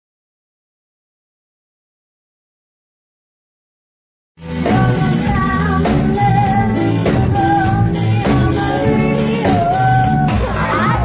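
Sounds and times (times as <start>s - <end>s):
drum kit: 4.4s - 11.0s
electric guitar: 4.4s - 11.0s
woman singing: 4.5s - 11.0s.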